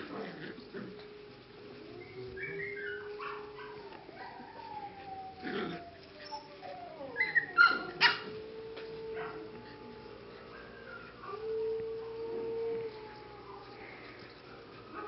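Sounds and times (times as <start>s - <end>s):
puppies whining: 0.0s - 15.0s
puppies yipping: 2.1s - 8.4s.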